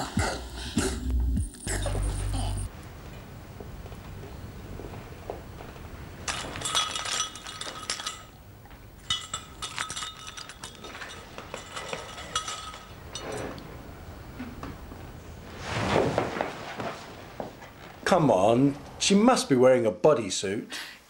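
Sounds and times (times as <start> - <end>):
glassy tinkling and clinking: 6.3 - 8.4, 9.0 - 13.7.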